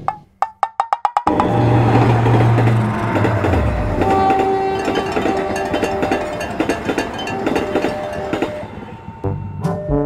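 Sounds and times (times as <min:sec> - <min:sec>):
train wheels clacking over rail joints: 0:01.2 - 0:08.9
locomotive engine drone: 0:01.3 - 0:10.0.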